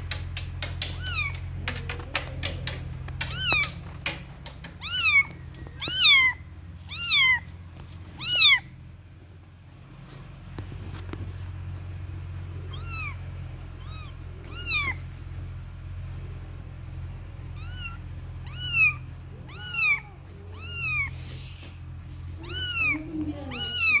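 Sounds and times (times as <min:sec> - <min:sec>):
steady low hum: 0:00.0 - 0:24.0
kitten mewing: 0:00.8 - 0:07.5, 0:08.1 - 0:08.7, 0:12.6 - 0:15.0, 0:17.5 - 0:24.0.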